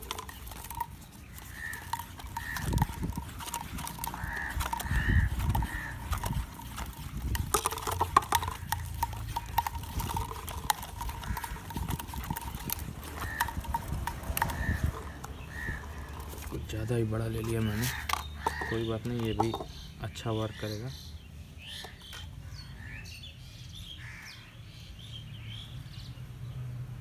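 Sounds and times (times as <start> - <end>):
paper cup taps and scrapes: 0.0 - 16.6, 17.4 - 19.7
birds calling: 0.0 - 26.7.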